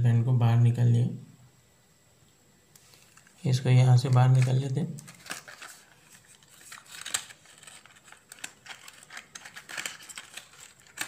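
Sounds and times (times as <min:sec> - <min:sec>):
plastic packaging crinkling: 0:02.8 - 0:11.0.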